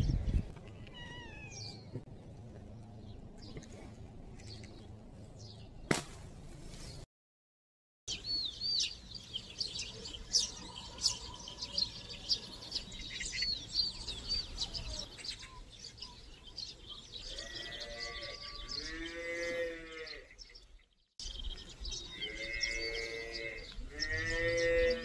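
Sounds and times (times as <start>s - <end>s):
small birds chirping and singing: 0.0s - 6.0s, 8.1s - 25.0s
cow mooing: 22.2s - 25.0s.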